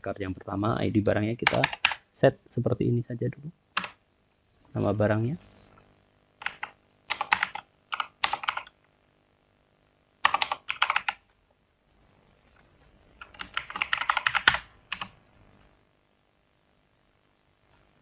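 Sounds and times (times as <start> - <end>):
keyboard typing: 1.4 - 2.0, 3.8 - 4.0, 6.4 - 8.8, 10.2 - 11.3, 13.2 - 15.2.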